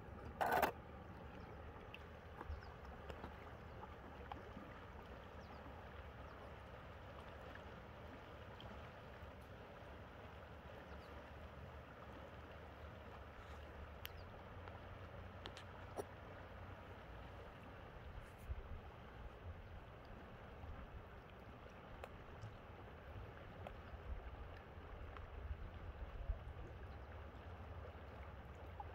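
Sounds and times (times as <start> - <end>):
faint ticks: 13.4 - 16.1.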